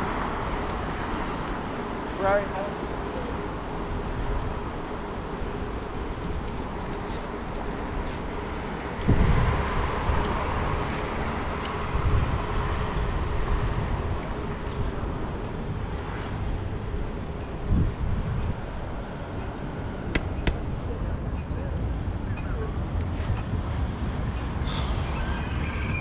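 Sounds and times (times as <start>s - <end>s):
passing cars hiss and rumble: 0.0s - 26.0s.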